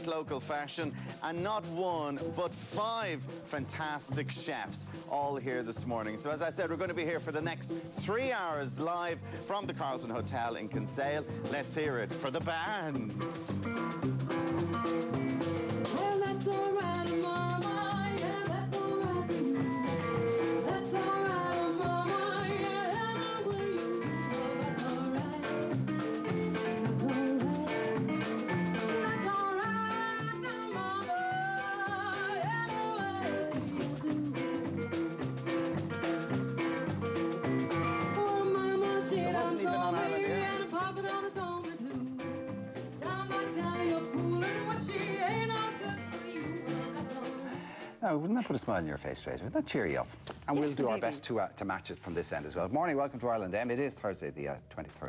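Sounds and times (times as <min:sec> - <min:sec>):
electric bass: 0:00.0 - 0:47.5
drum kit: 0:00.0 - 0:55.0
electric guitar: 0:10.8 - 0:47.9
woman singing: 0:15.9 - 0:34.8, 0:38.0 - 0:47.6.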